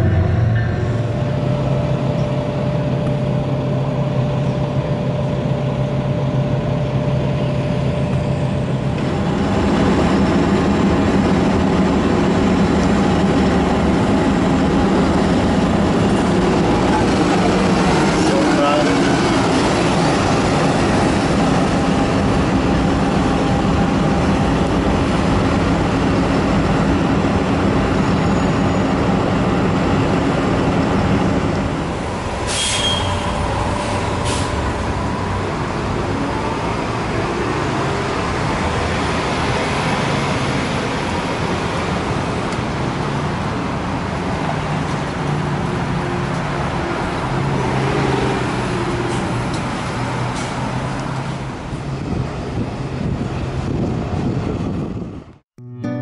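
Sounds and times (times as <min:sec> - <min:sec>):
bus engine running: 0:00.0 - 0:55.4
street traffic passing: 0:00.0 - 0:55.4
air-brake hisses: 0:32.4 - 0:33.3.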